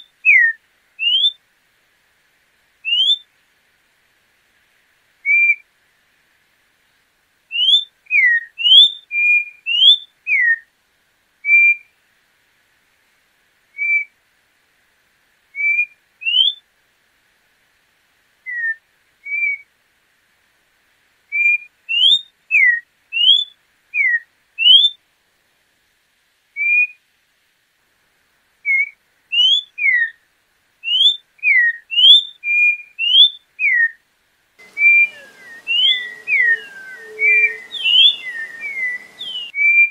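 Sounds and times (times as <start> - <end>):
bird whistling song: 0.0 - 1.4, 2.8 - 3.2, 5.2 - 5.6, 7.5 - 10.6, 13.8 - 14.1, 15.6 - 16.6, 18.4 - 19.6, 21.3 - 25.0, 26.6 - 27.0, 28.6 - 30.2, 30.8 - 34.0, 34.6 - 39.9.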